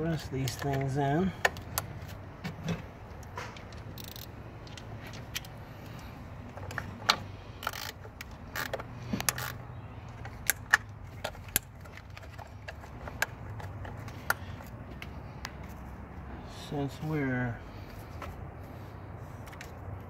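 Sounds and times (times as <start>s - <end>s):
plastic connectors clicking and rattling: 0.4s - 2.2s, 6.5s - 14.6s.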